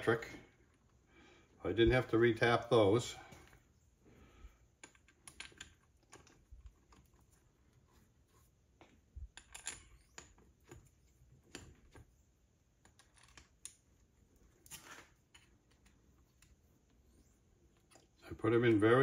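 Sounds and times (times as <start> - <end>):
bolts clicking and tapping metal: 4.7 - 7.4, 8.8 - 12.1, 12.7 - 16.6.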